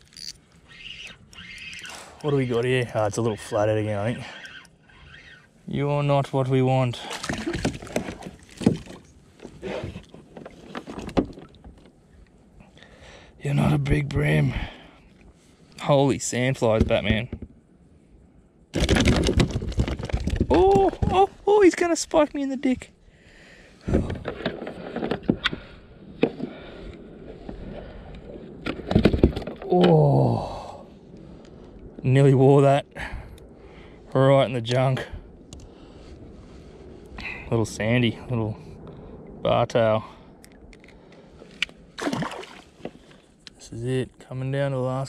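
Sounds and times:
knocks and clatter on plastic kayak: 0:07.2 - 0:12.0, 0:18.7 - 0:21.2, 0:28.6 - 0:29.7.

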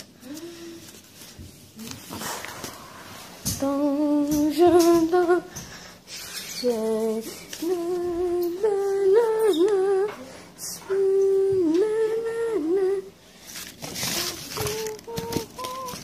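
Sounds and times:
person humming high tune: 0:14.0 - 0:16.0.

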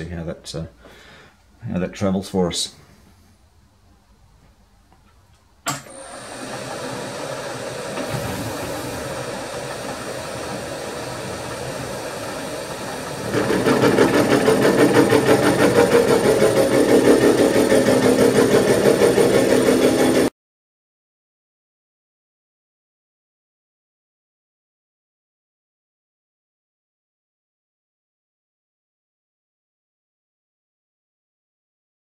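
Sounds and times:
face mill cutting steel: 0:05.8 - 0:20.3
milling machine spindle running: 0:05.8 - 0:20.3.

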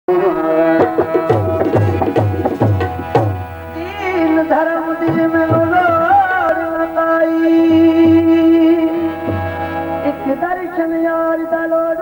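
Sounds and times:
tabla drumming: 0:00.4 - 0:10.4
steady held drone: 0:00.8 - 0:10.8
wavering melody line: 0:01.1 - 0:10.5.

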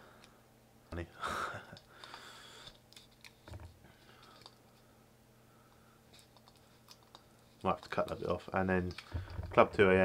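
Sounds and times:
faint rustles and ticks: 0:05.6 - 0:09.9.

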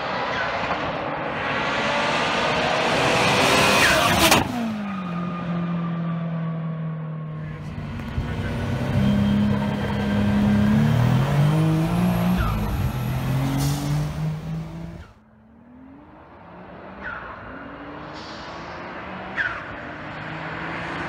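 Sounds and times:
car engine accelerating: 0:00.0 - 0:21.0
distant engine revving: 0:07.4 - 0:21.0.

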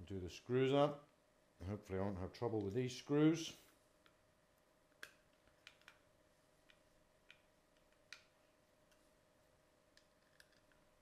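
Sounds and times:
faint steady hum: 0:00.0 - 0:11.0
faint clicks and taps: 0:04.9 - 0:06.0, 0:06.6 - 0:09.1.

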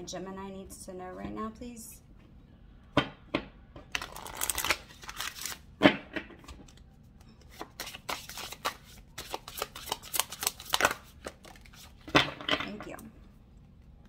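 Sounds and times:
cards rustling and flicking: 0:03.9 - 0:05.7, 0:06.4 - 0:12.1.

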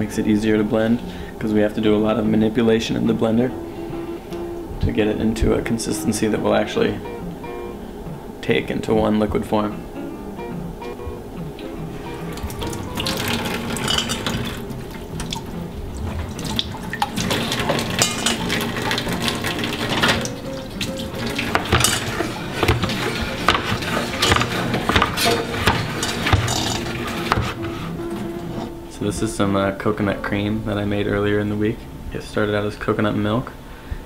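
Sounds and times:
tap water running: 0:12.1 - 0:28.8
knife chopping on cutting board: 0:27.2 - 0:27.9.

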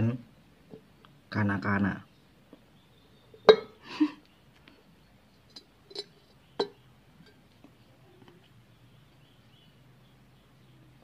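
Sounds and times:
clinks on glass jar: 0:03.4 - 0:03.8, 0:05.5 - 0:07.4.

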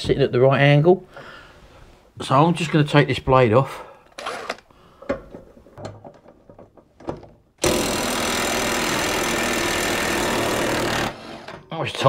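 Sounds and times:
impact wrench hammering: 0:07.6 - 0:11.6.

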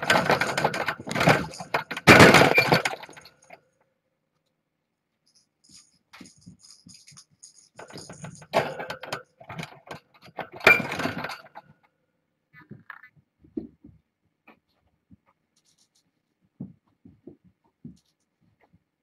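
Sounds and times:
toys clattering and jingling: 0:00.0 - 0:03.8, 0:05.2 - 0:11.9, 0:15.6 - 0:16.1.

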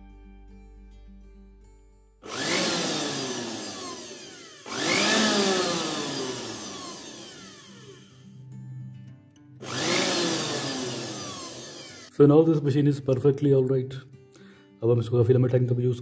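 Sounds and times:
blender motor whining: 0:02.2 - 0:08.2, 0:09.6 - 0:12.2.

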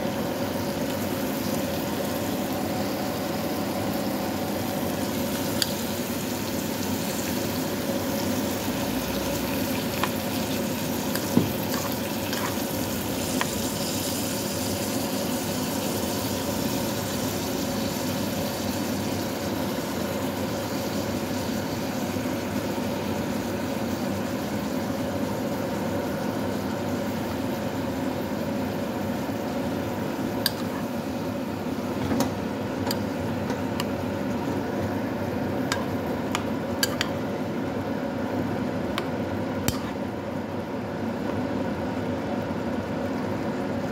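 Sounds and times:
sauce sizzling in a pot: 0:00.0 - 0:43.9
spoon clicking against pot: 0:35.7 - 0:37.1.

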